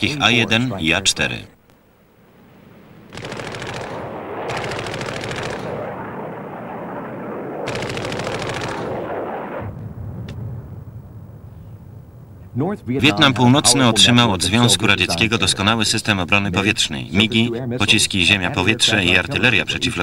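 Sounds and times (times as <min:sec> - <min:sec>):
steady rushing noise: 0:02.3 - 0:20.0
cannon automatic fire: 0:03.1 - 0:09.7.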